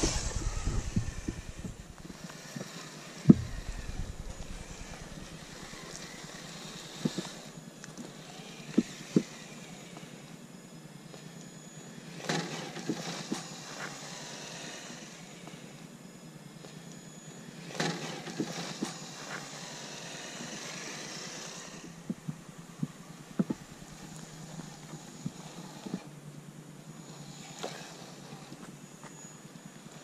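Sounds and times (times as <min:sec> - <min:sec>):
small electric motor whine: 0:00.0 - 0:30.0
toy car chassis knocks and clatter: 0:12.2 - 0:14.0, 0:17.7 - 0:26.0.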